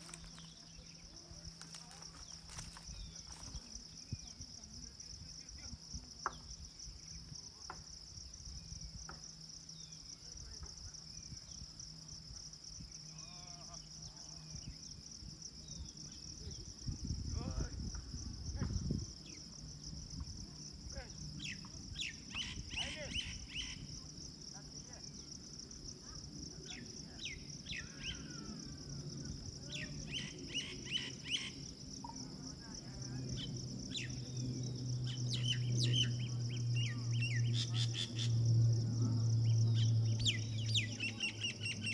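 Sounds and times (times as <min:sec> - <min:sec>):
high-pitched insect drone: 0:00.0 - 0:41.9
low steady hum: 0:31.1 - 0:41.9
bird chirps: 0:35.0 - 0:38.4, 0:39.4 - 0:41.9.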